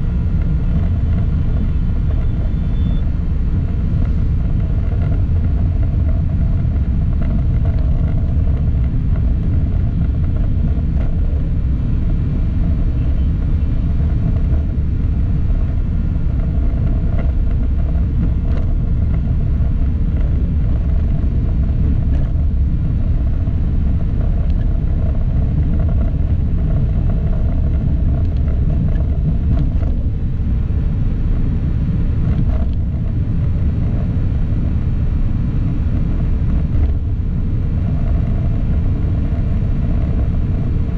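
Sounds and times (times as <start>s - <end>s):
vehicle driving rumble: 0.0s - 40.9s.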